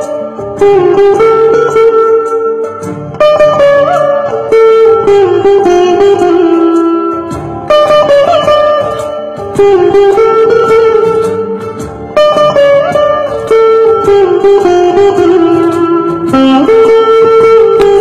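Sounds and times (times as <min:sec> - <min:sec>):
plucked veena melody: 0:00.0 - 0:18.0.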